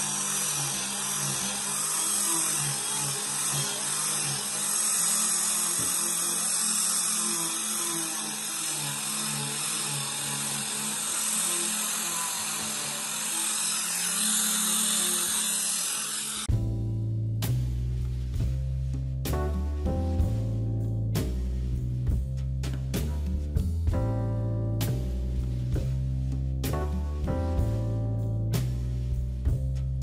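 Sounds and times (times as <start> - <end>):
angle grinder sanding wood: 0.0 - 16.5.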